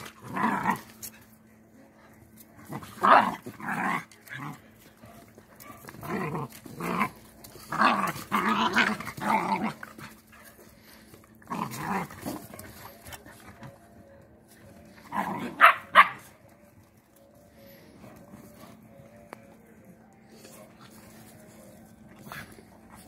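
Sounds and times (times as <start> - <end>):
puppies growling: 0.0 - 1.4, 2.2 - 13.8, 14.8 - 16.3, 20.4 - 23.0
puppies barking: 15.0 - 16.4.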